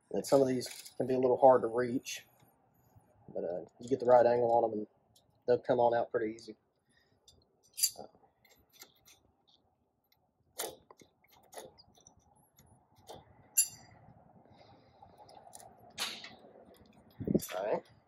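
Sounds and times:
wrench clinking against metal: 0:07.7 - 0:08.0, 0:13.6 - 0:13.9.

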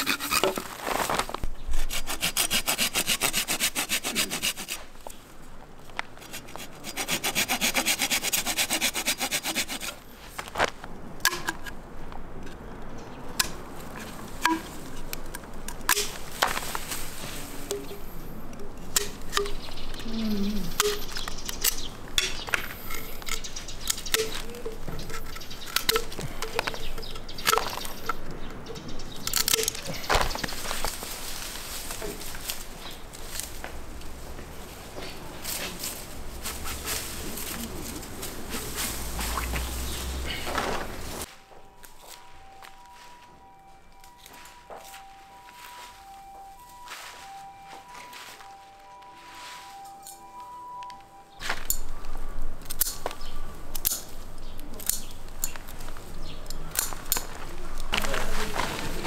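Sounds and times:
handsaw cutting bamboo: 0:00.0 - 0:00.7, 0:01.8 - 0:04.8, 0:06.2 - 0:10.0
pruning shears snipping: 0:13.4 - 0:17.0, 0:17.6 - 0:28.2, 0:29.2 - 0:31.1, 0:52.6 - 0:58.1.

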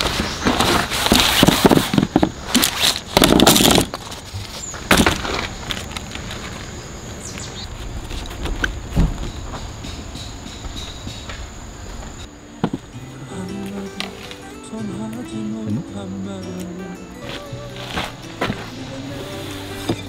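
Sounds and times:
objects rustling and clattering: 0:00.0 - 0:06.8
thump: 0:09.0 - 0:09.3.

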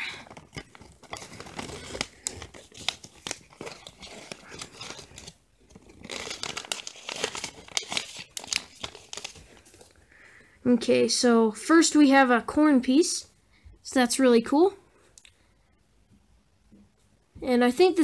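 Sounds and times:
plastic pouch crinkling: 0:00.0 - 0:10.0.

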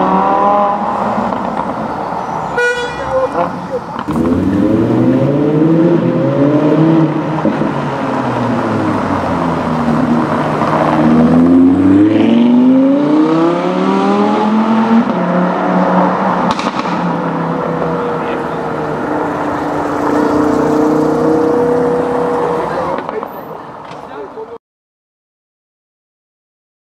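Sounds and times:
car engine accelerating: 0:03.2 - 0:23.2.

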